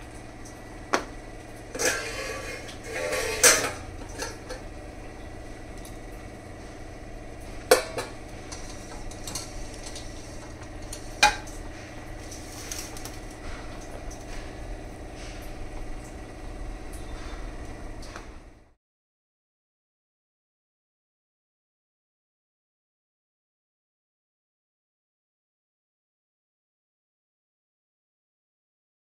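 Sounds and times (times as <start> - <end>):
steel vessels clanking: 1.6 - 6.2, 7.4 - 15.6.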